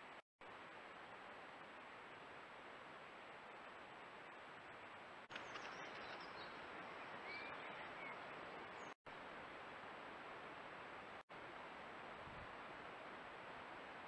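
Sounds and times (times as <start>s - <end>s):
faint microphone hiss: 0.0s - 14.0s
faint bird chirps: 5.3s - 9.0s.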